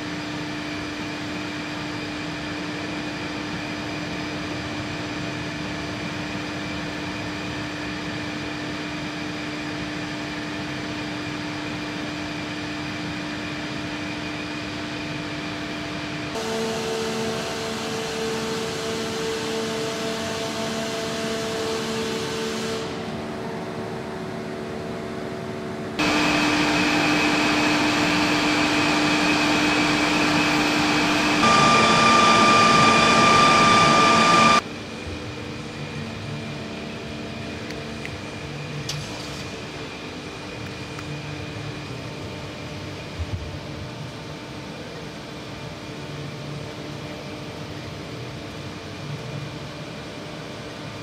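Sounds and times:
machinery hum and hiss: 0.0 - 51.0
high steady whine: 16.4 - 34.7.

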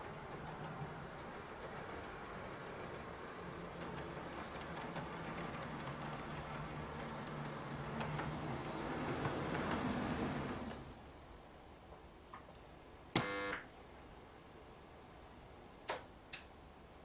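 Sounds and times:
train wheels clicking over rail joints: 0.0 - 10.8.

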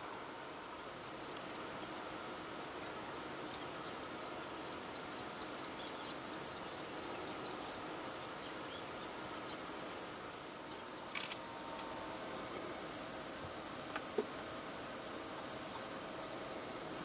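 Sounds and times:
outdoor background hiss: 0.0 - 17.0
sharp click: 11.1 - 11.9.

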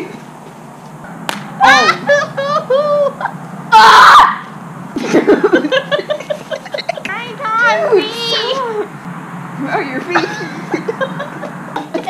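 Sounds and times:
girl shrieking: 1.6 - 3.1, 3.7 - 4.5
girls laughing and giggling: 1.6 - 4.0, 4.9 - 9.0, 10.0 - 12.0.

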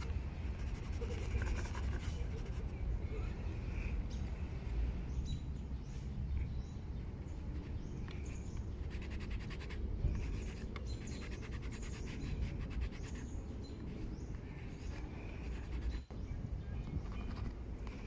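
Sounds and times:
pastel scratching on paper: 0.0 - 2.8, 8.8 - 13.4, 14.7 - 16.0
low outdoor rumble: 0.0 - 18.0
small birds chirping: 0.0 - 18.0.

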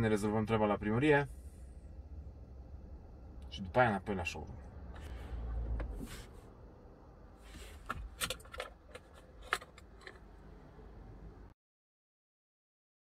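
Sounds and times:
rustling in car cabin: 4.9 - 6.5, 7.4 - 10.3.

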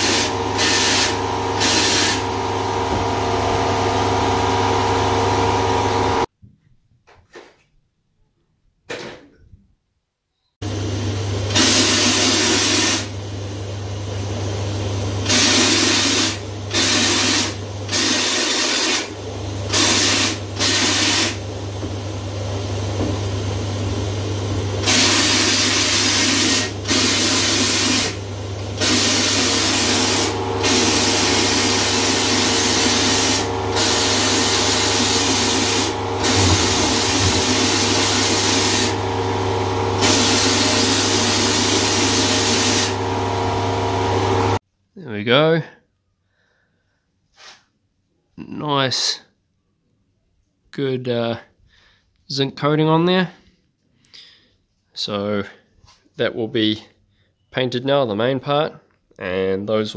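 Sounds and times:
blaster nozzle hissing: 0.0 - 3.9, 11.5 - 13.2, 15.2 - 21.4, 24.8 - 44.6
steady whine: 0.0 - 6.3, 19.0 - 44.6
steady low hum: 28.1 - 42.0.

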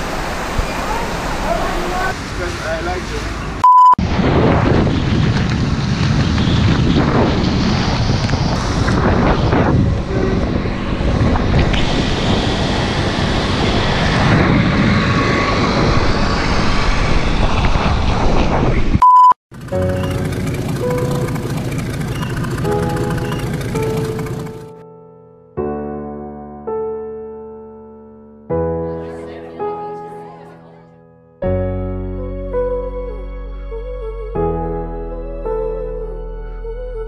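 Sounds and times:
motorbike and tyres on wet road: 0.0 - 24.8
short steady beep: 3.6 - 4.0, 19.0 - 19.4
wind buffeting microphone: 4.0 - 19.0.

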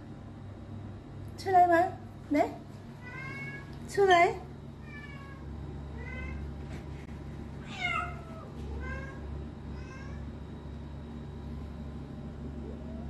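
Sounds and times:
steady low hum: 0.0 - 13.0
young cat meowing: 7.6 - 9.2, 9.8 - 10.2.

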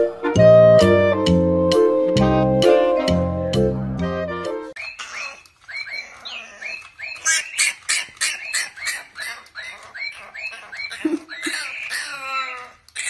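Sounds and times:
puppy yapping: 4.8 - 13.0.

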